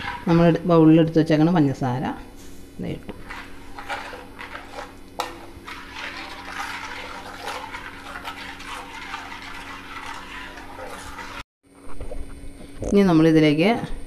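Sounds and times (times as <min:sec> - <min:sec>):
liquid swishing in pan: 0:00.0 - 0:11.5.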